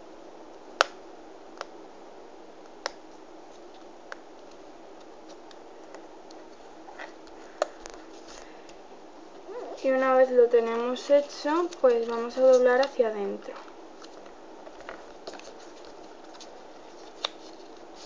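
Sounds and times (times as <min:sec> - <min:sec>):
paper crackling as folded: 0:10.6 - 0:18.0.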